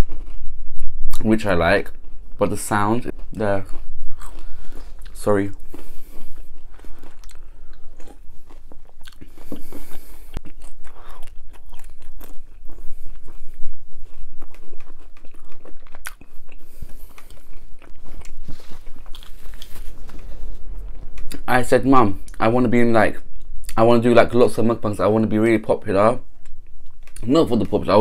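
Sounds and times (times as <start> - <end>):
chewing crunchy pizza crust: 2.0 - 21.5.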